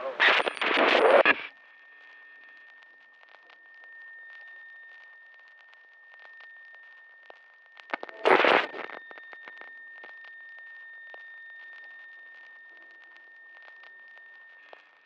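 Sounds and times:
faint clicks and crackles: 0:00.1 - 0:15.0.

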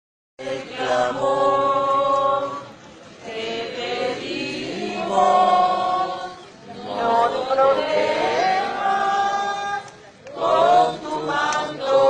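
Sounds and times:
nuns singing a hymn in unison: 0:00.4 - 0:12.0.

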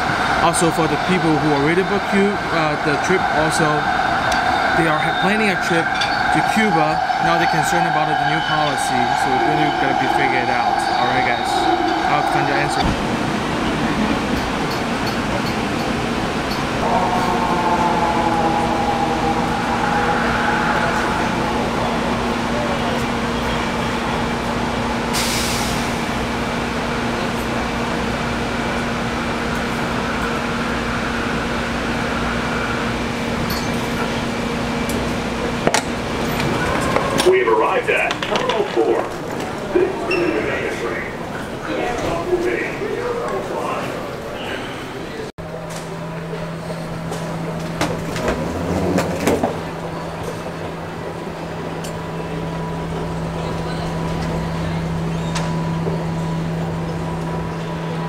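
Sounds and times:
escalator humming: 0:00.0 - 0:45.3
train car rumble: 0:00.0 - 0:58.0.

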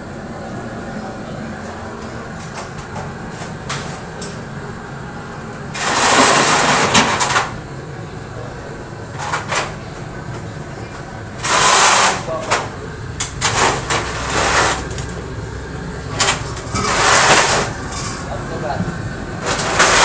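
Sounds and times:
metal sheet scraping on concrete: 0:11.4 - 0:12.6, 0:13.4 - 0:15.1, 0:16.2 - 0:18.3, 0:19.4 - 0:20.0
low hum: 0:12.6 - 0:19.6.

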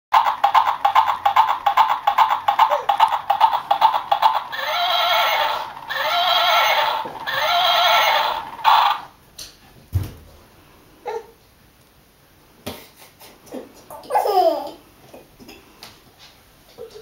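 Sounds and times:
electronic galloping hoof clip-clops: 0:00.1 - 0:06.2
electronic horse whinnies: 0:02.6 - 0:09.1.

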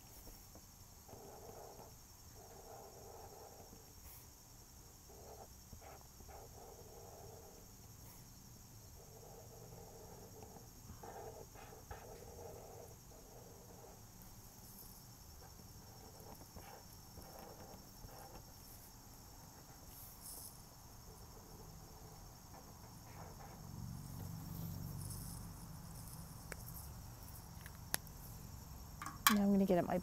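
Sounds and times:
marker colouring on paper: 0:01.1 - 0:03.9, 0:05.1 - 0:08.2, 0:09.0 - 0:20.5, 0:21.1 - 0:23.6.

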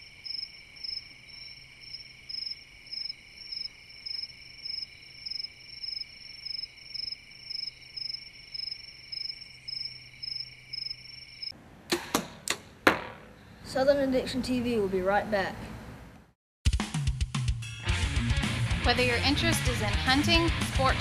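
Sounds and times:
high insect buzz: 0:00.0 - 0:11.5
insect chirping rhythmically: 0:00.0 - 0:11.6
sharp thwacks: 0:11.9 - 0:13.1.

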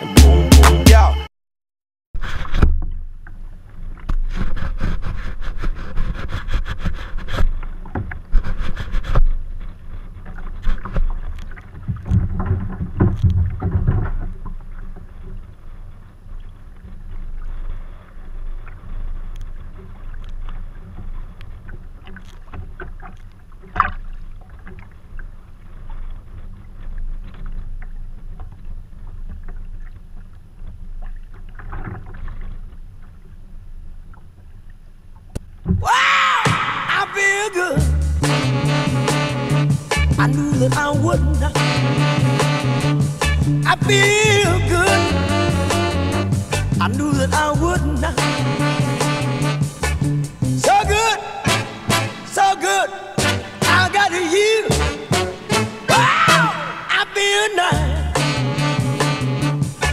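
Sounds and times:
waves slapping against kayak hull: 0:02.2 - 0:34.6.

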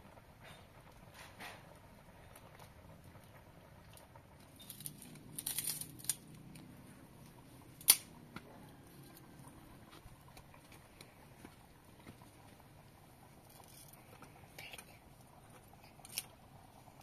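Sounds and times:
dry sticks rustling and crackling: 0:03.9 - 0:06.6
dry stick snapping: 0:07.8 - 0:08.1.

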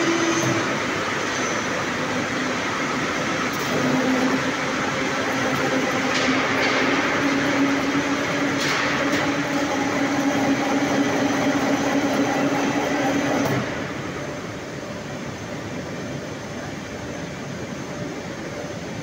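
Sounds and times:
rolling mill machinery humming: 0:00.0 - 0:19.0
machinery clattering: 0:03.5 - 0:13.9.

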